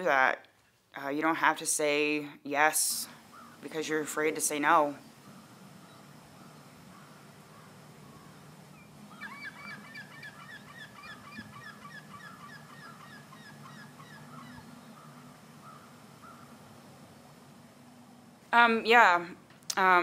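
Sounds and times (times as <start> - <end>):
faint low hum: 0.0 - 20.0
birds honking: 3.2 - 4.0, 4.7 - 17.8.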